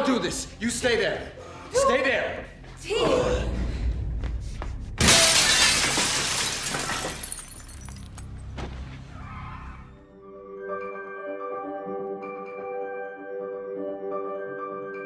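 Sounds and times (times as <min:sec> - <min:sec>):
window pane shattering: 0:05.0 - 0:08.2
glass shards tinkling: 0:05.4 - 0:08.4.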